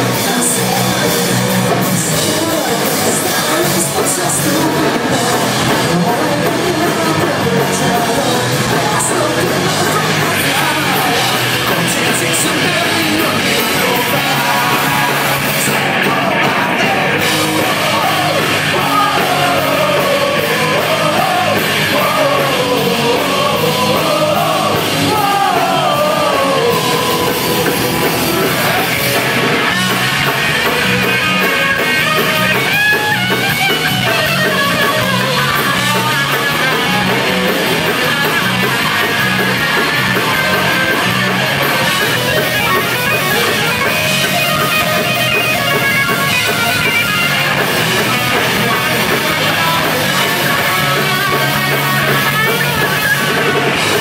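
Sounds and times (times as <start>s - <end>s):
person singing: 0.0s - 29.9s, 42.1s - 54.0s
bass and drum pulse: 0.0s - 54.0s
live rock band playing: 0.0s - 54.0s.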